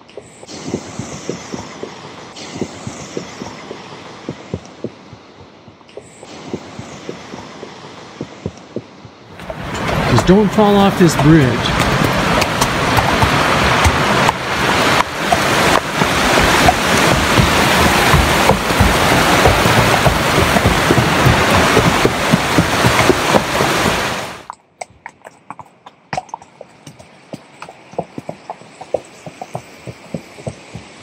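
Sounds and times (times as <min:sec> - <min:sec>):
horse hooves on trail: 0:00.0 - 0:31.0
rushing mountain creek: 0:06.2 - 0:31.0.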